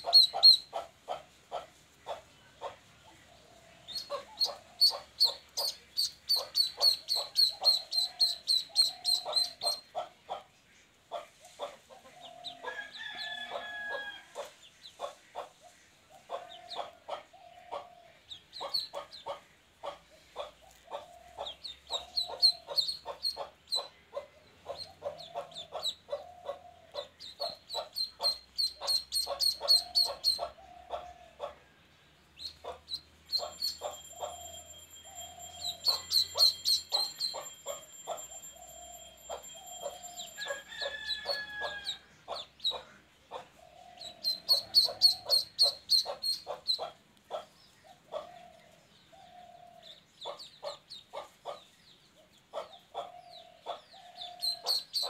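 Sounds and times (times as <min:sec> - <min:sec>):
duckling peeping: 0:00.0 - 0:02.8, 0:03.9 - 0:10.5, 0:16.2 - 0:31.5, 0:32.4 - 0:34.5, 0:35.6 - 0:38.2, 0:41.2 - 0:47.5, 0:49.8 - 0:51.6, 0:52.6 - 0:55.0
chickens clucking: 0:00.0 - 0:31.7, 0:32.4 - 0:55.0.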